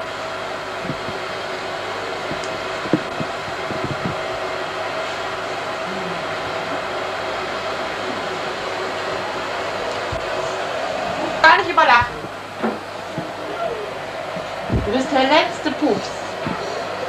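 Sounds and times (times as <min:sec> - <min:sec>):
faint hum: 0:00.0 - 0:17.0
soft knocks: 0:02.3 - 0:04.4.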